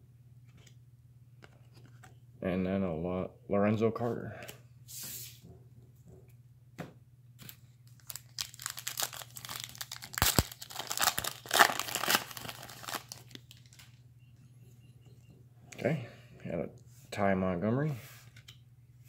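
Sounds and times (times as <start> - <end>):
foil wrapper tearing and crinkling: 7.9 - 13.8.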